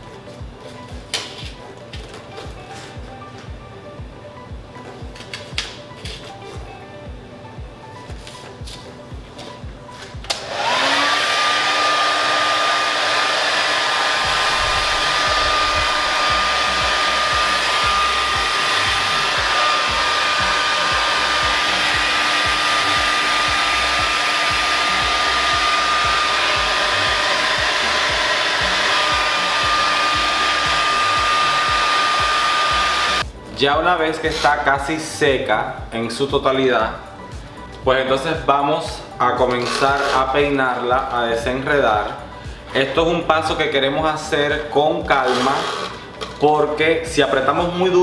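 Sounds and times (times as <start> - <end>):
hair dryer blowing with high whine: 10.0 - 33.3, 39.6 - 42.2, 43.5 - 46.8
rush of air: 14.2 - 17.0.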